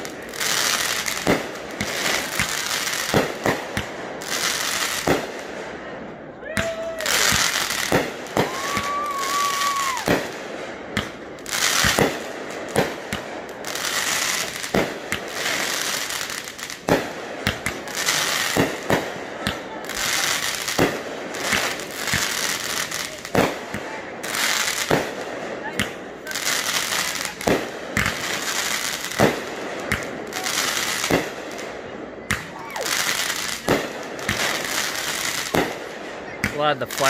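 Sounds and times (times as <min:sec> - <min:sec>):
fireworks bursting bangs: 0:00.0 - 0:37.0
fireworks hissing and crackling: 0:00.0 - 0:37.0.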